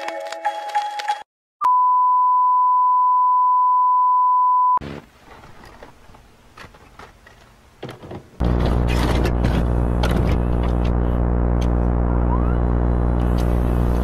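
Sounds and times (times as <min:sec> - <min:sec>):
loud pure test tone beep: 0:01.6 - 0:04.8.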